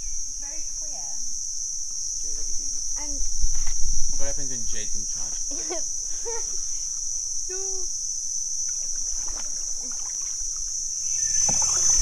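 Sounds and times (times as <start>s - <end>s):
insect chorus drone: 0.0s - 12.0s
kayak paddle splashing: 8.6s - 12.0s.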